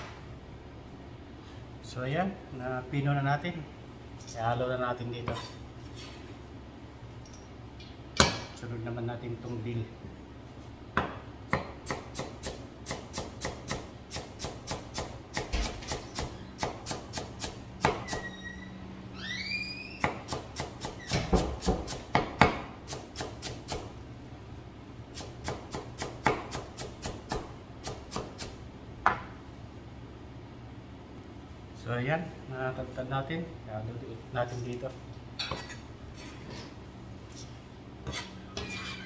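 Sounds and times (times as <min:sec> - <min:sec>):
knife chopping on cutting board: 0:11.0 - 0:18.2, 0:20.0 - 0:23.9, 0:25.2 - 0:29.2.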